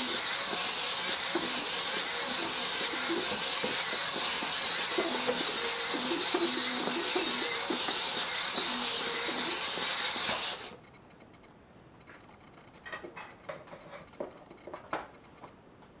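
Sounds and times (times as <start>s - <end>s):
servos whirring: 0.0s - 11.0s.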